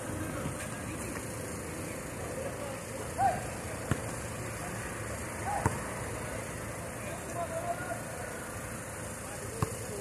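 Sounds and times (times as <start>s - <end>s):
steady background hum: 0.0s - 10.0s
basketball bouncing: 3.8s - 4.2s, 5.5s - 5.9s, 9.6s - 9.8s.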